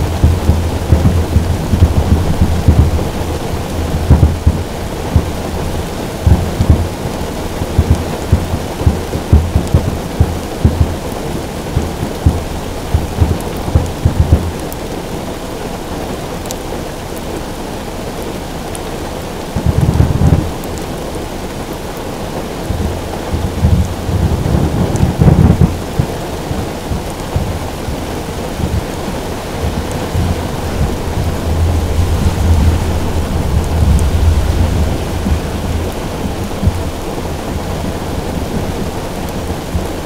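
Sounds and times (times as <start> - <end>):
fireworks bursting in low booms: 0.0 - 11.2, 11.8 - 14.8, 19.6 - 20.6, 22.7 - 27.6, 29.6 - 39.0
rain drumming on a car roof: 0.0 - 40.0.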